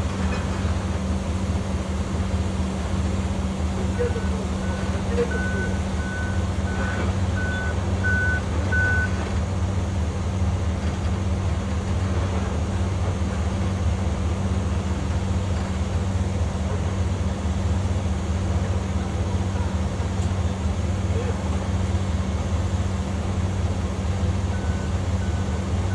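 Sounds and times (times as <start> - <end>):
engine idling hum: 0.0 - 25.9
reversing alarm beeping: 4.2 - 9.2.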